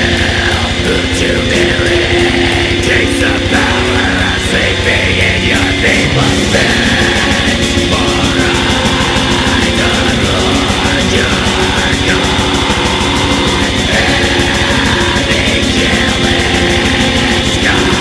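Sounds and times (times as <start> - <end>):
distorted guitars: 0.0 - 18.0
fast drumming: 0.0 - 18.0.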